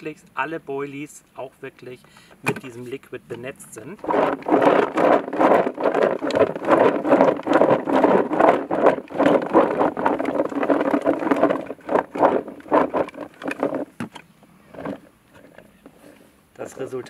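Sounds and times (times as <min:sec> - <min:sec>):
bait rattling in plastic bucket: 0:04.0 - 0:15.6.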